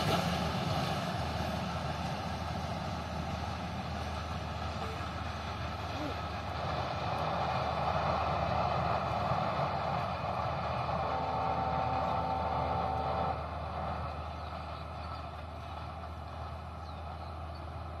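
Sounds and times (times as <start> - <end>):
distant train running: 0.0 - 18.0
train horn: 10.8 - 13.9.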